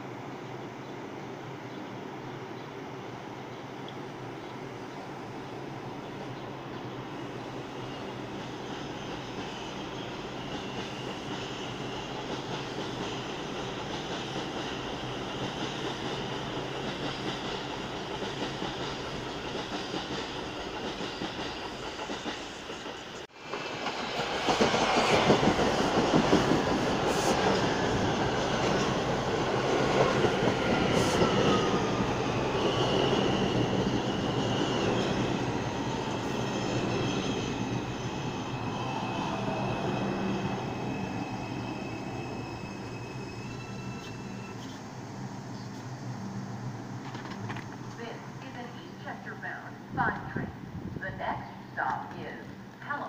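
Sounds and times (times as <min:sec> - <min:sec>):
subway train rumble: 0:00.0 - 0:53.0
train wheels clattering and squealing: 0:07.6 - 0:46.0.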